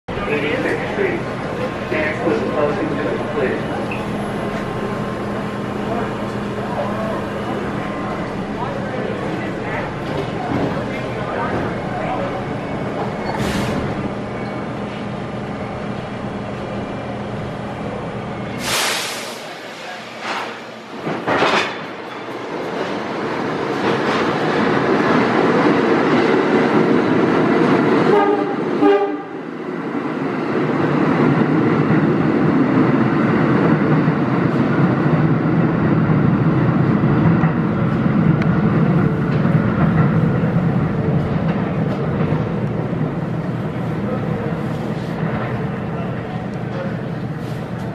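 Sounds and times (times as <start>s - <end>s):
subway train rumbling and clattering: 0.1s - 47.9s
burst of noise: 18.6s - 20.6s
train horn blast: 28.0s - 29.4s.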